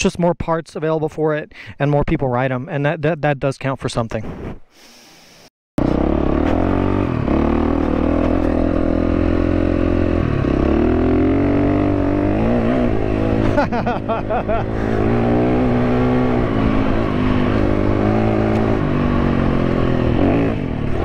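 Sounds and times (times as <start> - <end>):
motorcycle engine under load: 5.8 - 21.0.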